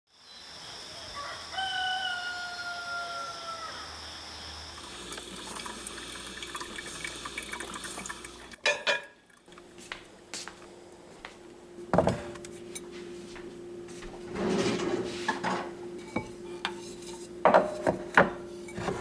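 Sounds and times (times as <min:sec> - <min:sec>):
rooster crowing: 0:00.9 - 0:04.1
coffee maker sputtering: 0:04.8 - 0:08.7
coffee maker brewing: 0:04.8 - 0:09.9, 0:16.0 - 0:19.0.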